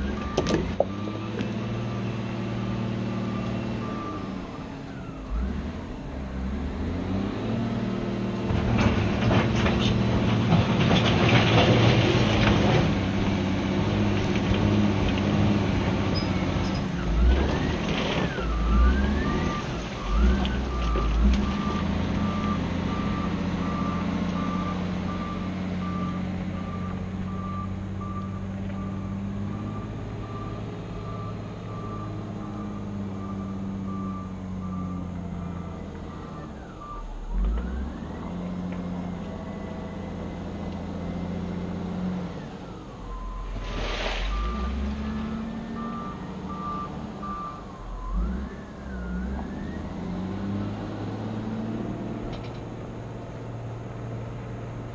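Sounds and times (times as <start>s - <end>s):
diesel engine running: 0.0s - 54.9s
reversing alarm beeping: 3.0s - 5.4s, 18.3s - 38.6s, 42.5s - 43.6s, 44.2s - 50.8s.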